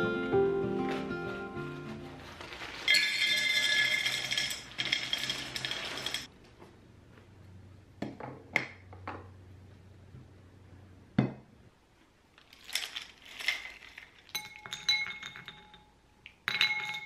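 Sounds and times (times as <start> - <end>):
dry shells rattling into glass jar: 2.9 - 6.3, 12.4 - 15.8
lid clinking on glass jar: 2.9 - 6.3.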